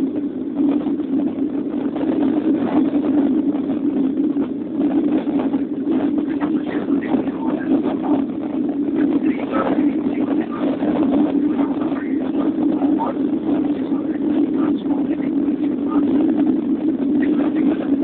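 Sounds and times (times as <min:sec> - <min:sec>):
jet airliner cabin drone: 0:00.0 - 0:18.0.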